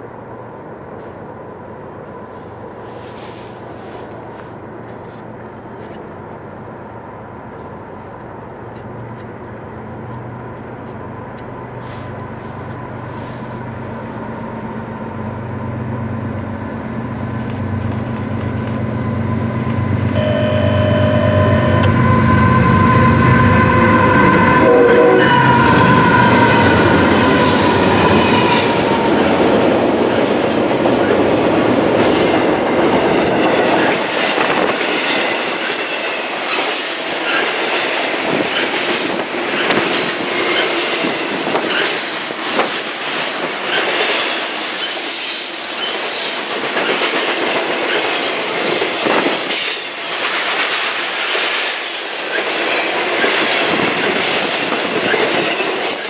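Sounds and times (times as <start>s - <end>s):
diesel locomotive engines: 0.0s - 56.0s
high wheel squeal: 18.4s - 32.5s, 43.7s - 52.9s
train horn: 20.1s - 30.5s
train wheels clicking: 25.4s - 56.0s.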